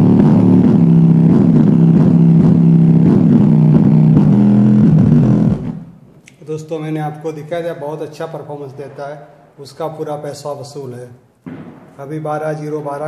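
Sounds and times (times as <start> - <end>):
song bass through subwoofer: 0.0 - 6.1.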